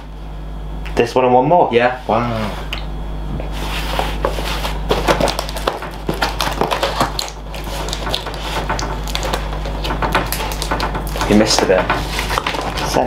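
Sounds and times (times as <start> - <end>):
packaging rustling and crinkling: 3.8 - 13.0
small knocks: 4.2 - 13.0.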